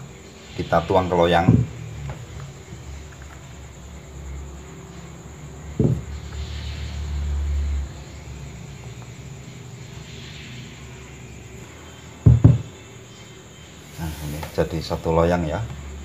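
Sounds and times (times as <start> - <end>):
low rumble of bowl and pan: 1.3 - 3.5, 5.7 - 6.2
pan knocking on table: 1.5 - 1.7, 5.8 - 6.0, 12.2 - 12.7.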